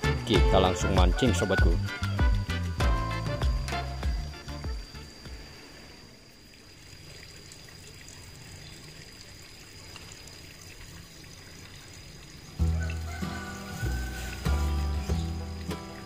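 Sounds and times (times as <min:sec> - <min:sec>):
river water trickling over rocks: 0:05.8 - 0:16.0.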